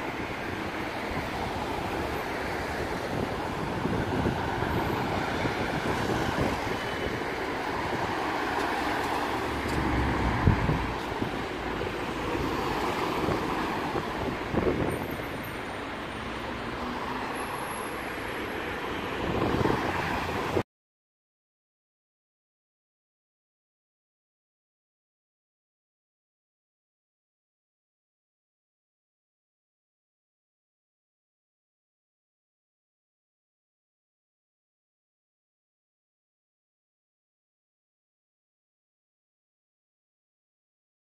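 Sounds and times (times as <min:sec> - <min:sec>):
road traffic noise: 0:00.0 - 0:20.6.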